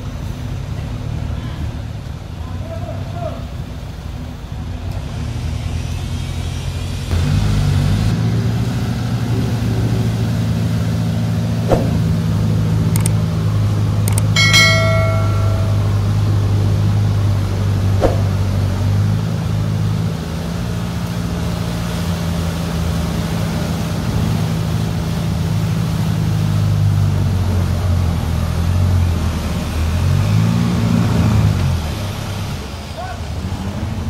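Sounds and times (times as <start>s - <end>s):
engine running and revving: 4.9s - 14.4s, 16.3s - 34.0s.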